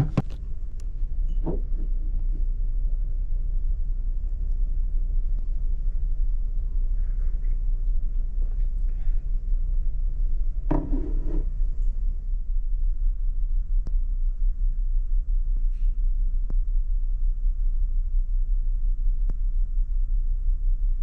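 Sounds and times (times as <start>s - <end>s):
ship engines rumbling: 0.0s - 0.6s
ceramic mug knocking on counter: 10.7s - 11.4s.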